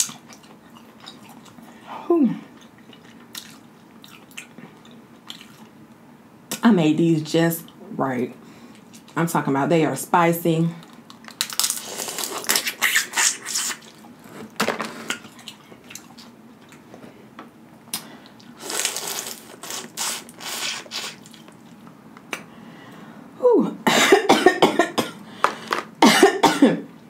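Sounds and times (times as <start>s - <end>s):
crawfish shells cracking: 10.8s - 13.1s
wet sucking and slurping: 11.8s - 13.9s, 18.6s - 21.4s.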